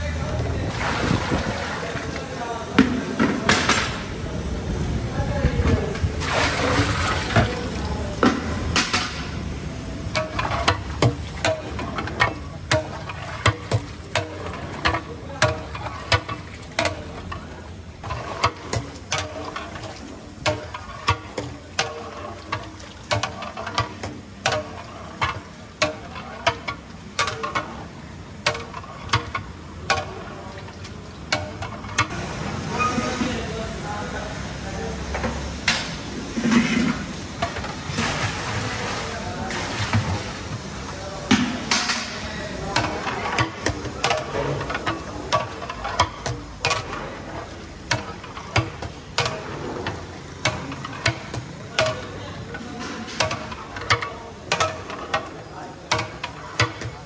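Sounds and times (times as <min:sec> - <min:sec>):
metal ladle clanking in pot: 0:10.1 - 0:27.8, 0:28.4 - 0:32.1, 0:41.3 - 0:57.0
hissing splashy liquid: 0:36.2 - 0:40.9.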